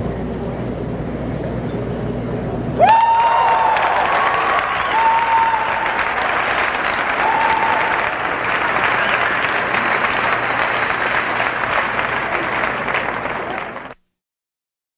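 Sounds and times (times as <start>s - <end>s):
crowd applauding: 2.8s - 14.0s.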